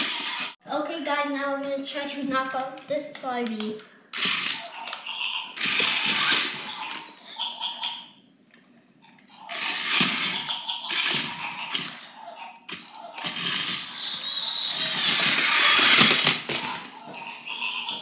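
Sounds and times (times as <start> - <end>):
plastic wheels clattering on tile: 0.0 - 0.6, 5.6 - 7.0, 9.5 - 12.0, 12.7 - 17.0
toy robot motors whirring: 0.0 - 0.6, 4.1 - 7.2, 9.3 - 17.8.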